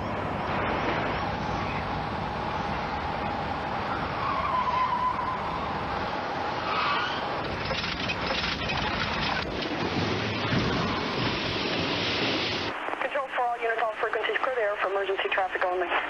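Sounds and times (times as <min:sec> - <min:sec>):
tyres skidding: 0:00.0 - 0:12.7.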